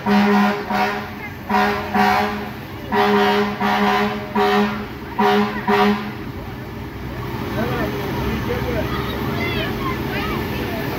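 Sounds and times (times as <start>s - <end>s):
fire truck air horn blasts: 0.0s - 6.2s.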